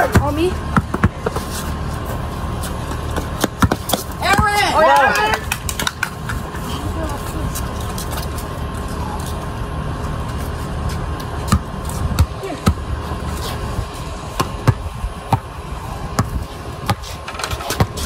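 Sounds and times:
basketball bouncing on concrete: 0.0s - 1.6s, 3.0s - 4.7s, 10.9s - 12.9s, 14.3s - 18.0s.

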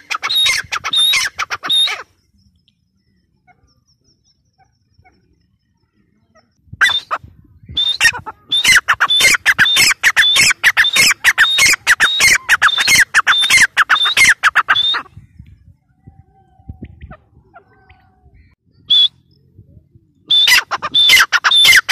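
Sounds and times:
bird calling harshly: 0.0s - 2.2s, 6.3s - 15.3s, 20.3s - 21.9s.

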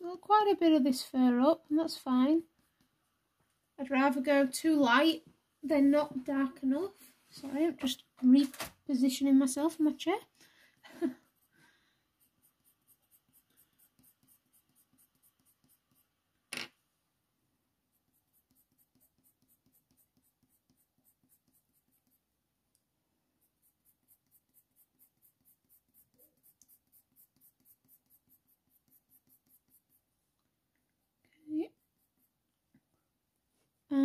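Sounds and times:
pencil scratching on paper: 9.7s - 16.3s, 17.8s - 22.4s, 23.3s - 30.2s, 31.6s - 32.6s.

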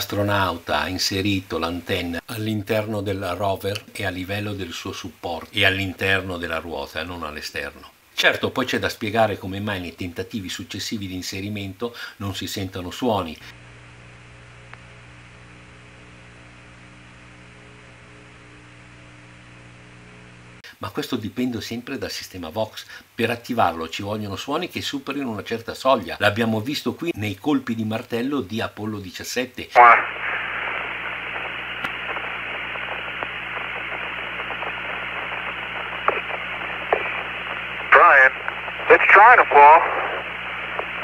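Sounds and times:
electrical hum with hiss: 0.0s - 41.0s
faint click: 31.4s - 32.3s.

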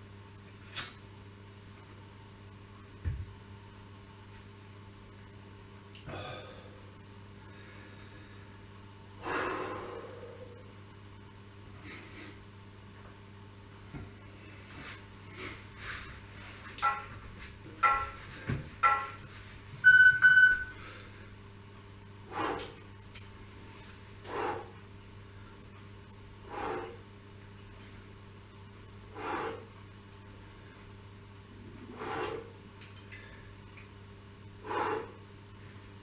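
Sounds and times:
long electronic beep: 19.8s - 20.8s
short electronic tones: 19.8s - 20.8s.

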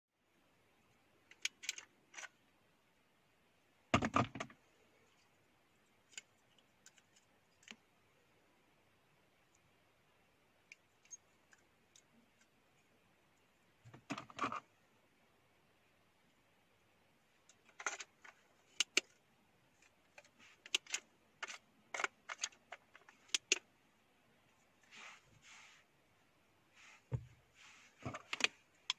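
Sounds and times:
plastic parts clicking and scraping: 1.2s - 2.4s, 5.9s - 7.9s, 10.6s - 12.8s, 13.8s - 14.7s, 17.4s - 23.7s, 27.9s - 28.9s.

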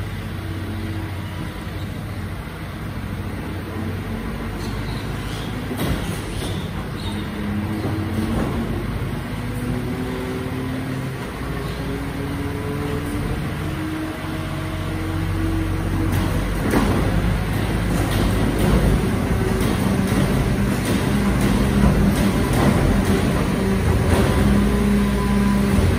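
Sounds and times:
hydraulic pump whining: 0.0s - 25.9s
metal clanks and rattles: 4.6s - 10.7s, 15.6s - 25.9s.

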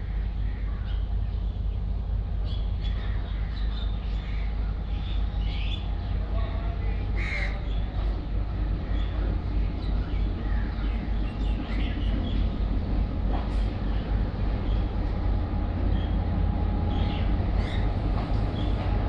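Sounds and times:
diesel locomotive rumbling: 0.0s - 19.0s
crows cawing: 7.2s - 7.6s.

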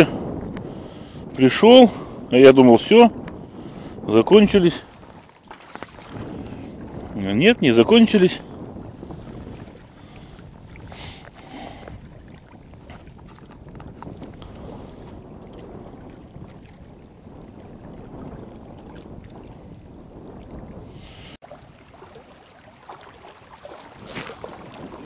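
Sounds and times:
wind rumbling on microphone: 0.0s - 25.0s
small waves lapping on rocks: 21.4s - 25.0s.

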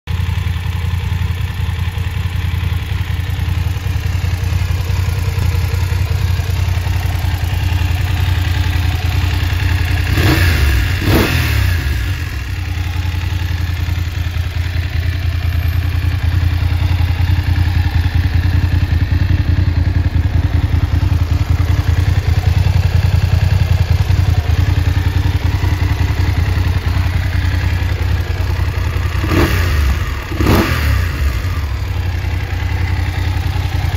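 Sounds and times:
motorcycle engine idling and revving: 0.0s - 33.9s.

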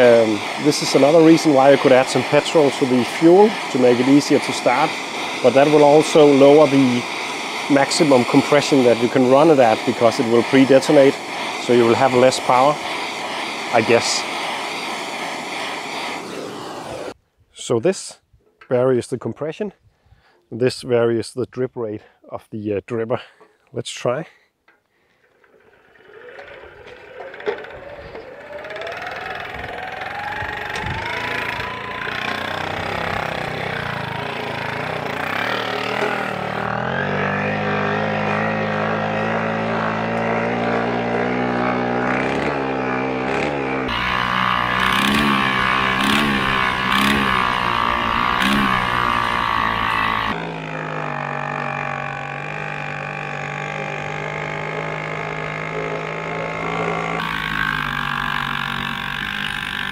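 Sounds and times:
moped engine running: 0.0s - 17.1s, 25.2s - 59.9s.

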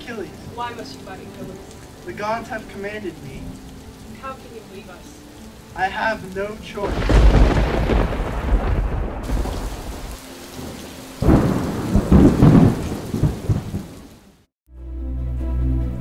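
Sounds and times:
rain: 0.0s - 14.5s
thunder rumbling: 6.8s - 14.2s.

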